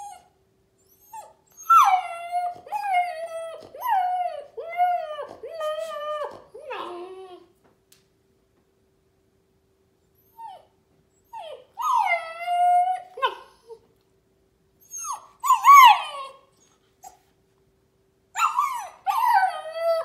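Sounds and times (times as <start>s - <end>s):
puppy whining and howling: 0.0s - 7.6s, 10.2s - 13.8s, 14.8s - 17.2s, 18.3s - 20.0s.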